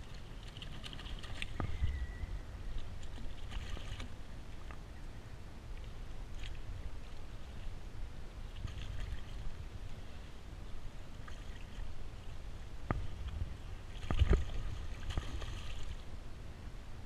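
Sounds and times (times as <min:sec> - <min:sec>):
water sloshing against kayak hull: 0:11.2 - 0:16.0
fish splashing: 0:13.9 - 0:16.0.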